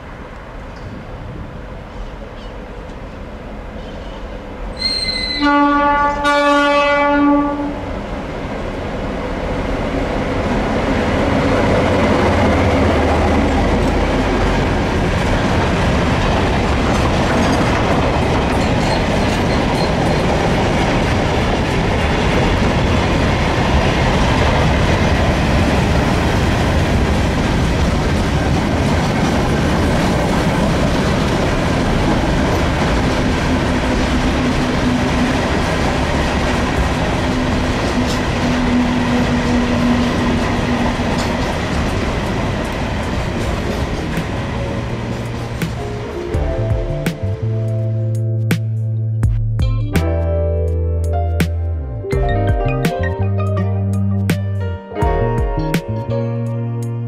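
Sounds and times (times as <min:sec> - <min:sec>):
train wheels clattering on rails: 0:11.5 - 0:46.2.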